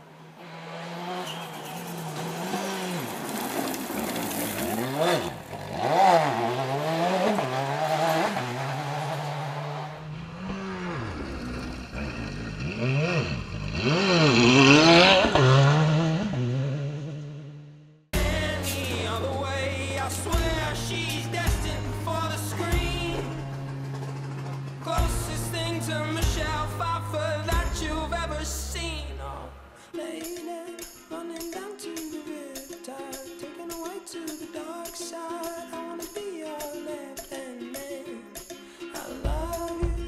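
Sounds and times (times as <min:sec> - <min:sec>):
rally car engine revving: 0:00.0 - 0:29.8.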